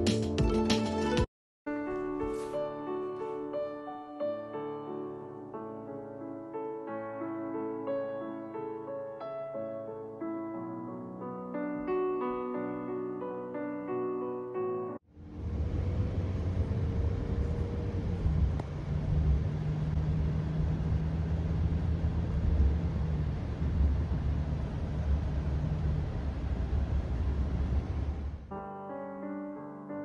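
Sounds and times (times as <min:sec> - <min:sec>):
car engine and tyre rumble: 0:15.1 - 0:28.5.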